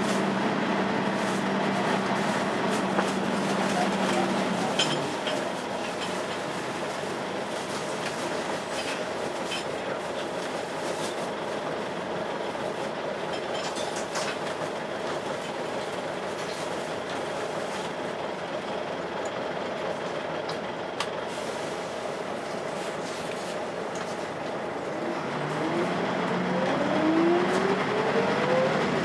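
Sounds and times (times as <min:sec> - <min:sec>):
bus cooling fan whoosh: 0:00.0 - 0:09.3
bus engine and road noise: 0:00.0 - 0:29.0.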